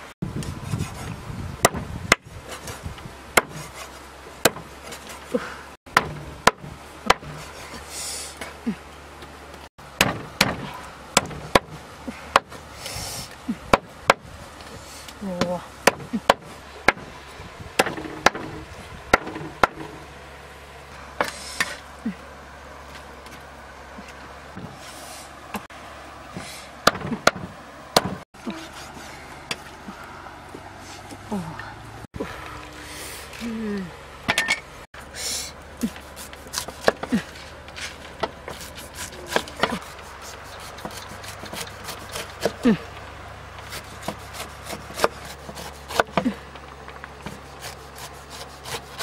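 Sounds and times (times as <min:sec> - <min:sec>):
cleaver chopping on wooden block: 0:03.4 - 0:03.7, 0:04.4 - 0:04.7, 0:05.9 - 0:07.4, 0:10.0 - 0:12.5, 0:15.4 - 0:17.1, 0:17.8 - 0:18.5, 0:19.1 - 0:20.0, 0:26.8 - 0:28.2, 0:35.9 - 0:37.2, 0:38.2 - 0:39.9, 0:43.7 - 0:46.3.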